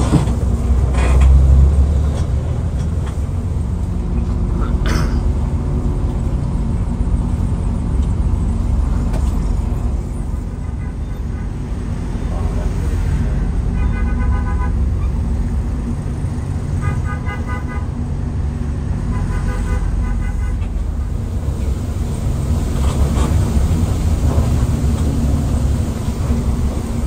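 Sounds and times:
bus engine running: 0:00.0 - 0:27.0
road noise: 0:00.0 - 0:27.0
vehicle horn blasts: 0:13.7 - 0:14.9, 0:16.8 - 0:18.0, 0:19.0 - 0:20.8.

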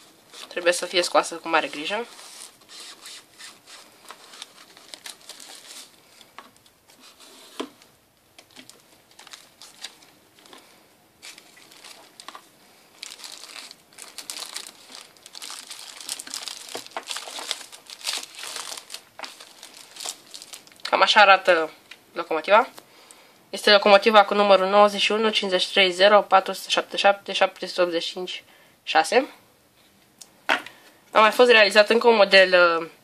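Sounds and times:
plastic bag crinkling: 0:00.0 - 0:06.8, 0:08.4 - 0:21.3.

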